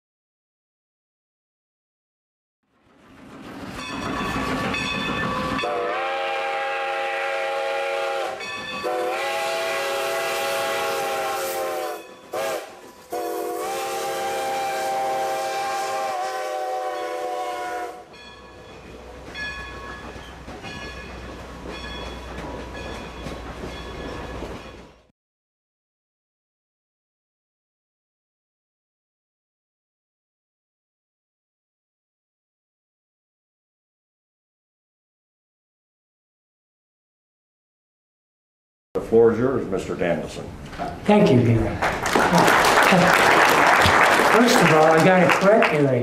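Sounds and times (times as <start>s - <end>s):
train cars rumbling past: 2.7s - 25.1s
train horn blasts: 5.6s - 18.1s.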